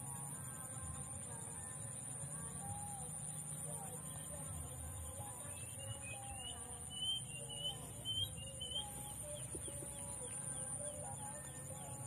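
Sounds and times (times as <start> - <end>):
birds chirping: 2.7 - 12.0
low wavering calls: 5.6 - 11.9.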